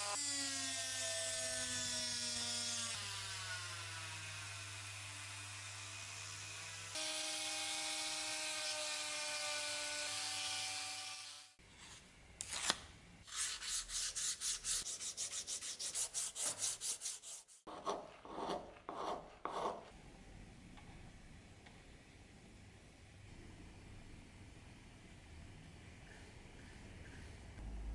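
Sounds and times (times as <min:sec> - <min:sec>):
sandpaper rubbing on wood: 0:13.3 - 0:19.8.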